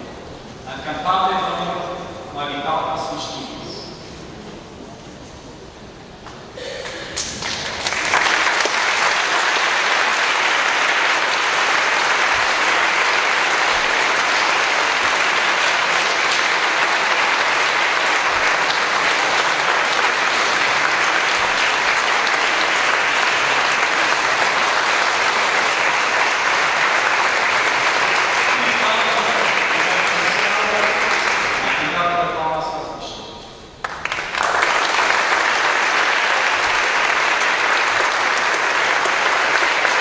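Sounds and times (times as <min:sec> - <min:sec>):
audience applauding: 0:06.8 - 0:32.0, 0:33.8 - 0:40.0.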